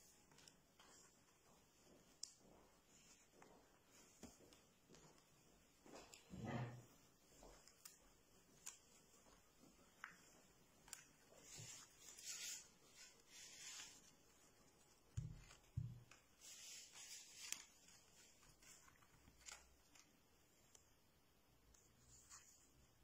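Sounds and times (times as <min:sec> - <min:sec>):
paper flaps rustling: 0:07.5 - 0:20.2.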